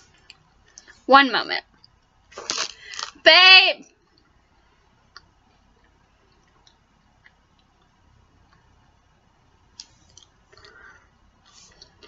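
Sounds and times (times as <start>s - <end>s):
faint clicks and ticks: 3.9s - 8.9s.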